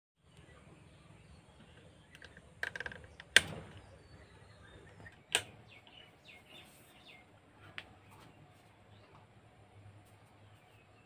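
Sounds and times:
fan regulator clicking: 1.6 - 4.2, 4.8 - 6.0.

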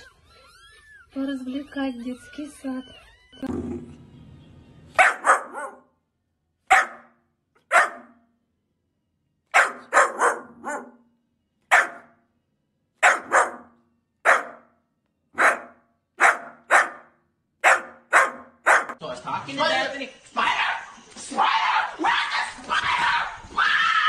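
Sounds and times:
puppy barking: 5.0 - 5.9, 6.7 - 8.3, 9.5 - 11.1, 11.7 - 12.2, 13.0 - 14.8, 15.4 - 19.0.

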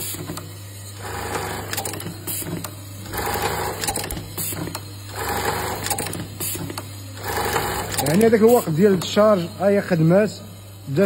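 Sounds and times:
steady low machine hum: 0.0 - 11.0
sewing machine stitching bursts: 1.0 - 8.7.

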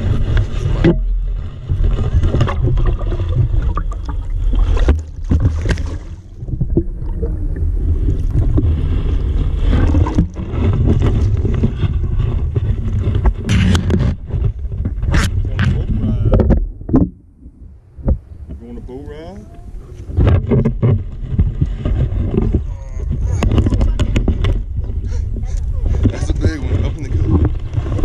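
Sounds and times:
knocks against hull: 0.0 - 3.9, 4.6 - 6.9, 9.7 - 17.2, 18.0 - 18.6, 20.1 - 25.0
water splashing around boat: 0.0 - 17.1, 18.0 - 28.0
steady low rumble: 0.0 - 28.0.

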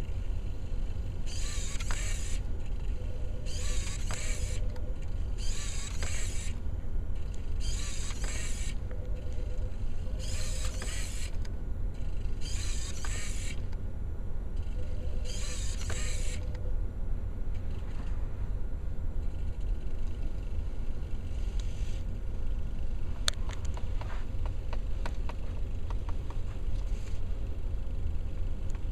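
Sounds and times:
servo motors whirring: 0.0 - 13.8, 14.6 - 16.7, 19.2 - 22.1
steady low rumble: 0.0 - 28.9.

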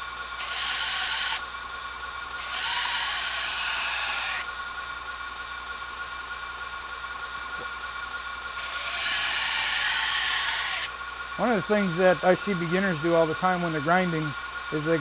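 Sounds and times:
knife blade grinding hiss: 0.0 - 4.6, 8.5 - 11.0
belt grinder running: 0.0 - 15.0.

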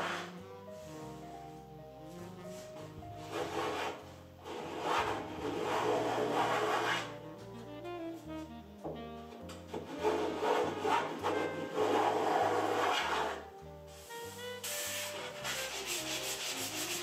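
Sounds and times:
hand plane shaving wood: 0.0 - 0.3, 3.3 - 7.1, 9.8 - 13.4, 15.0 - 17.0
background music: 0.0 - 17.0.

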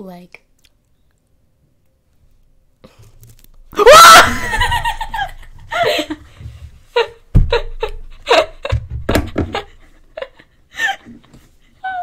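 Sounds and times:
girls laughing: 3.8 - 11.3.

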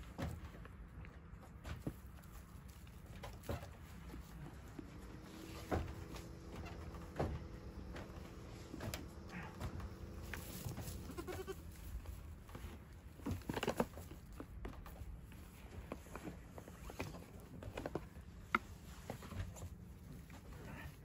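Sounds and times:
goat bleating: 9.2 - 11.8.

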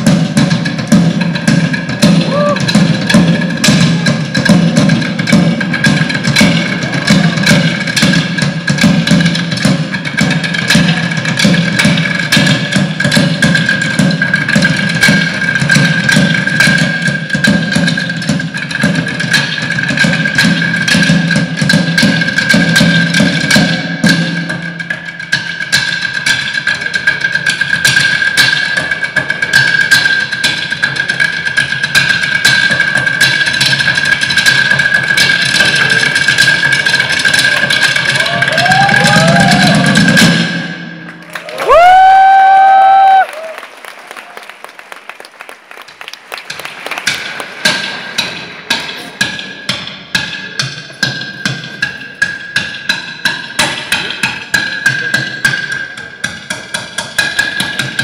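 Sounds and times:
deeper beats: 0.0 - 25.8, 32.5 - 43.5.

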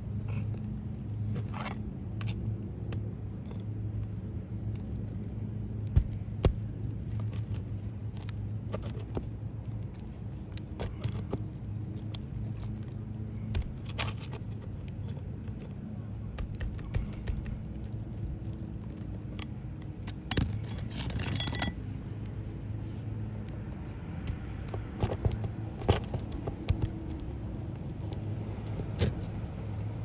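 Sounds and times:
low mechanical hum: 0.0 - 30.0
pry bar scraping under shingles: 1.2 - 2.5, 4.8 - 21.9.

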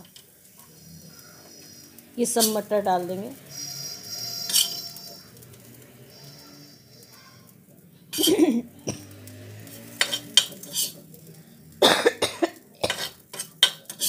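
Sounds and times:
spoon scraping on iron griddle: 0.0 - 11.3, 12.8 - 14.0
person coughing: 11.8 - 13.1.

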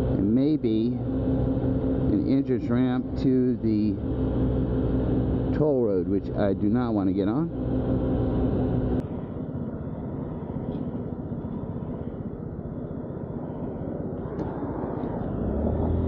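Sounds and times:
scooter engine running and revving: 14.2 - 16.0.

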